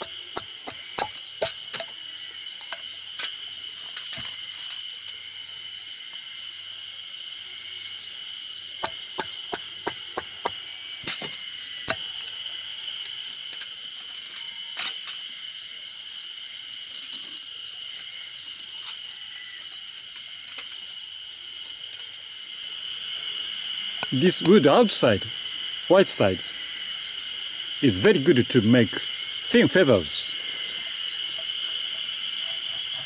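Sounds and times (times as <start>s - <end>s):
insects buzzing: 0.0s - 33.0s
knife shaving wood: 31.6s - 33.0s.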